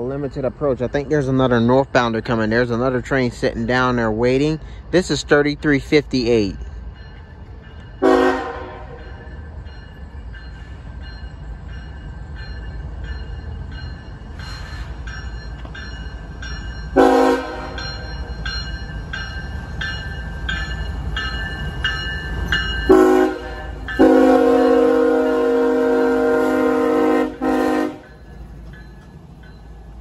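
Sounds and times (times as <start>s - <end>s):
train rumble: 0.0s - 30.0s
locomotive air horn blasts: 8.0s - 9.0s, 17.0s - 17.8s, 22.9s - 28.1s
bell ringing: 17.8s - 23.2s.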